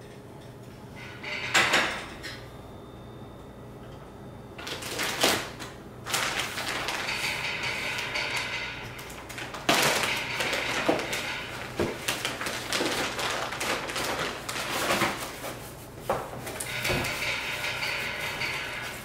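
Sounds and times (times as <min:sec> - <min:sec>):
plastic bag crinkling: 0:04.6 - 0:15.6.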